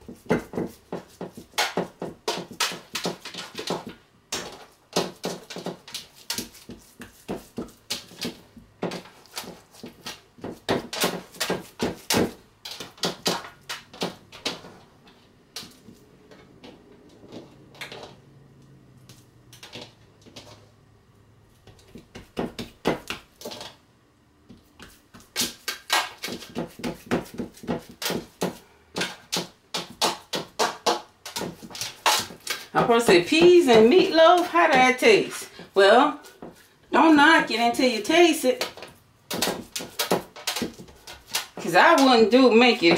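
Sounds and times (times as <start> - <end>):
hands slapping raw meat mixture: 0.0 - 14.6, 24.5 - 32.8.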